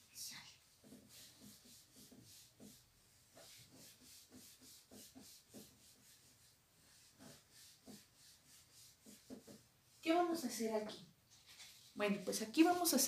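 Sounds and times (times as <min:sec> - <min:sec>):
rubbing on a whiteboard: 0:00.2 - 0:10.6, 0:11.3 - 0:13.0.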